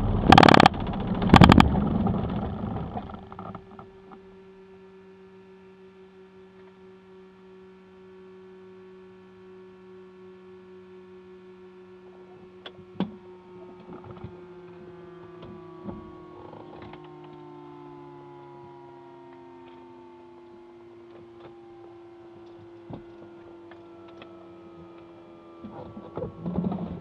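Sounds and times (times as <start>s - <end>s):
aircraft piston engine running down: 0.0s - 4.6s
electrical hum and whine: 0.0s - 27.0s.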